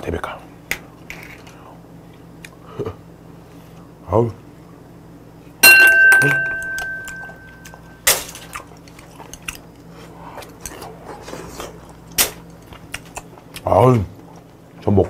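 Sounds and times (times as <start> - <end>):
faint eating sounds: 0.0 - 4.8, 6.9 - 15.0
tableware clinking: 5.6 - 8.2.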